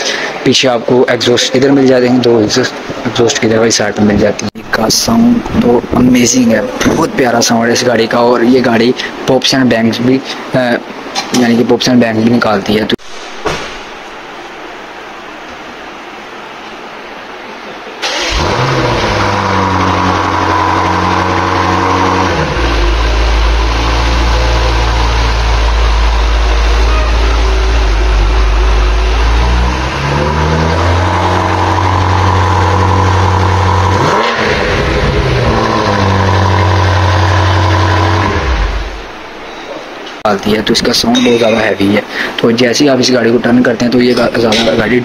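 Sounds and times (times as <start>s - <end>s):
car engine starting and idling: 18.0s - 39.4s.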